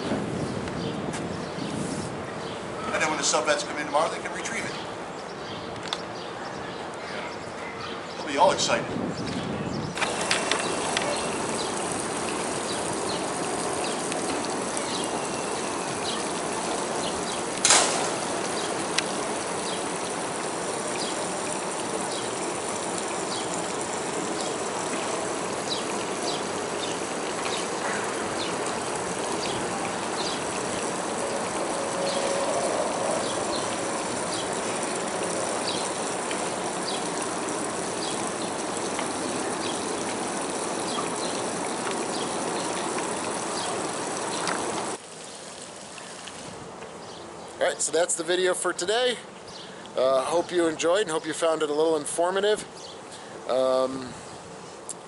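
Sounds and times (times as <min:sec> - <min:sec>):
water gushing onto steel hull: 0:09.9 - 0:46.8.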